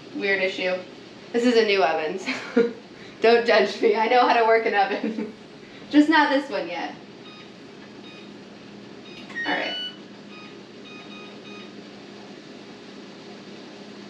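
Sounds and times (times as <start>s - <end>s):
steady low hum: 0.0s - 14.0s
oven control panel beeping: 7.2s - 8.4s, 9.0s - 11.8s.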